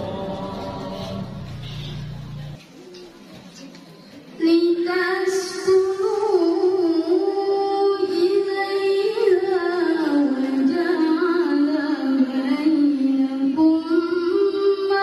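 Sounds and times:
woman reciting melodically: 4.3s - 15.0s.

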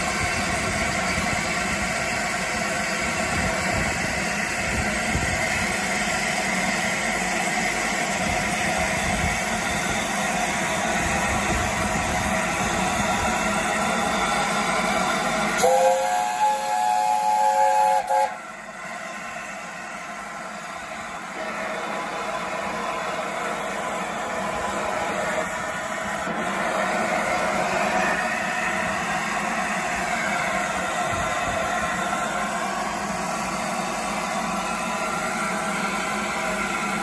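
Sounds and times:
steam locomotive hissing: 0.0s - 37.0s
steam chime whistle: 15.5s - 18.6s.

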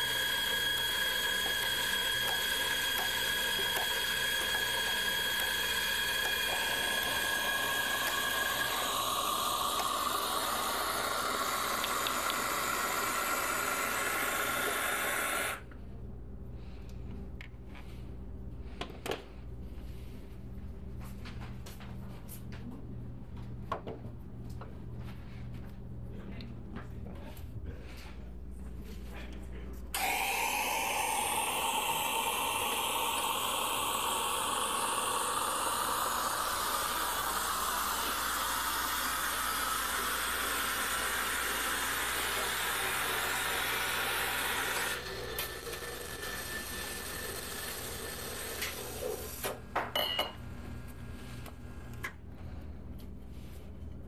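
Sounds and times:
loud machine noise with rising tone: 0.0s - 15.6s, 30.0s - 49.0s.

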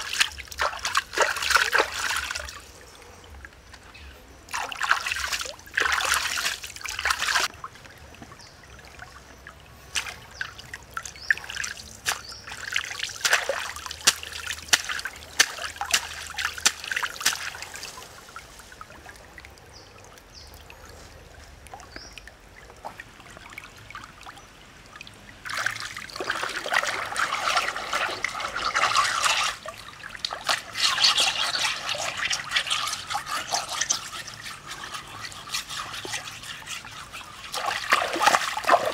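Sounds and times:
hands splashing in water: 0.0s - 2.7s, 4.5s - 7.5s, 9.9s - 18.2s, 25.4s - 38.9s
water trickling in stream: 0.0s - 38.9s
stone scrubbed by hand: 30.5s - 38.7s.

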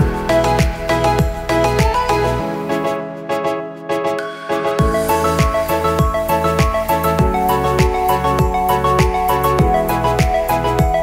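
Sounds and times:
deep kick drum: 0.0s - 2.1s, 4.8s - 11.0s.

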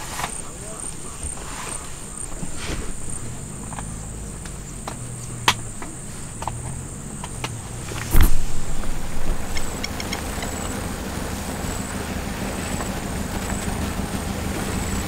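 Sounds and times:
insects trilling: 0.0s - 15.0s
light clicks: 2.4s - 10.8s.

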